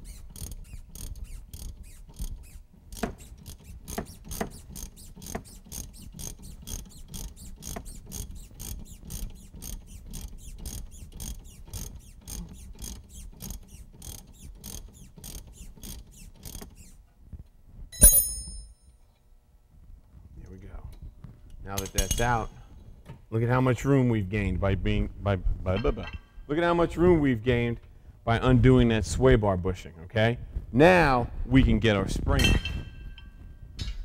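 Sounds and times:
ratchet wrench clicking: 0.0 - 17.0
ringing metallic clink: 18.0 - 18.9.

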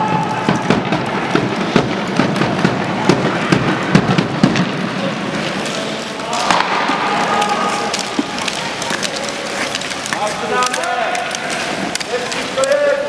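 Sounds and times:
sticks clacking on ice: 5.4 - 13.0.

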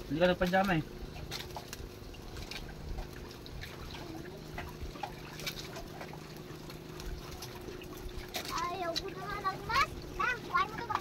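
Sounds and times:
water lapping against boat hull: 0.0 - 11.0.

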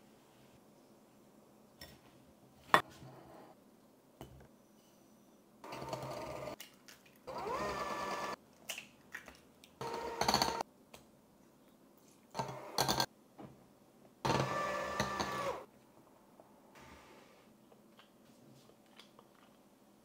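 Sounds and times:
electric hand mixer whirring: 7.3 - 8.4, 9.8 - 10.6, 14.3 - 15.6.

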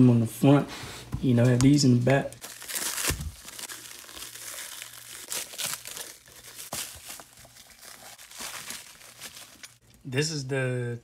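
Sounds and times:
plastic wrap crinkling: 2.3 - 9.8.

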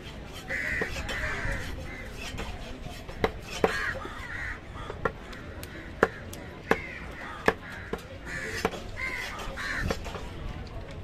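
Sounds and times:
crows cawing: 3.5 - 10.0.

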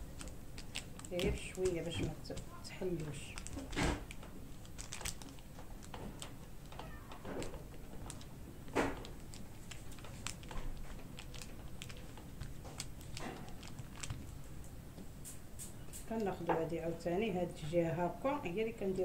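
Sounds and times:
hand tapping dough: 0.0 - 4.2
baking paper rustling: 0.0 - 16.2.

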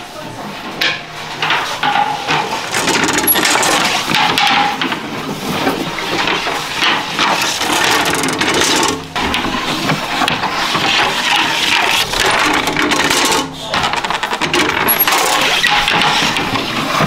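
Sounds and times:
metal oven rake scraping: 1.4 - 4.7, 14.4 - 17.0.

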